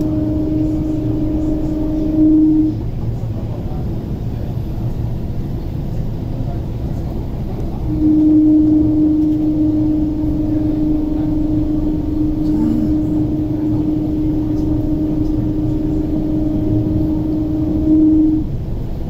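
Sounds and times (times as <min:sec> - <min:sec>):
electric train rumbling: 0:00.0 - 0:19.0
steady hum: 0:00.0 - 0:19.0.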